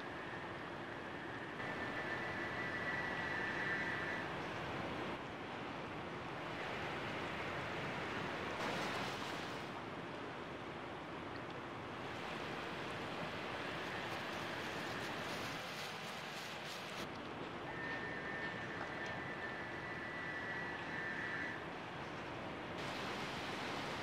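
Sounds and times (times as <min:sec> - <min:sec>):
river water rushing and lapping: 0:04.4 - 0:19.3, 0:21.6 - 0:24.0.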